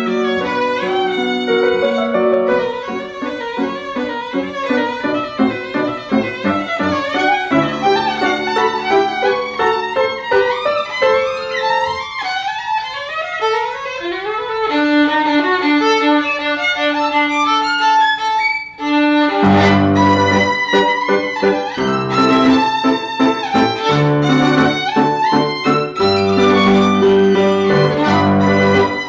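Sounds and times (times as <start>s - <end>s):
bowed violin: 0.0s - 29.0s.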